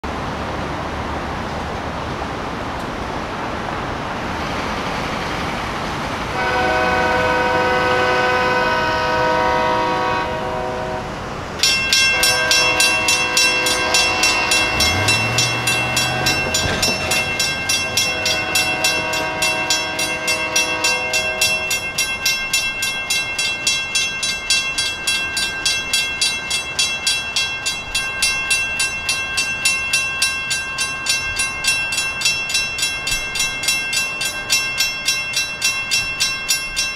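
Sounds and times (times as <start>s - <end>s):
locomotive horn blasts: 6.3s - 11.2s, 12.0s - 22.0s
crossing bell ringing: 11.5s - 36.9s.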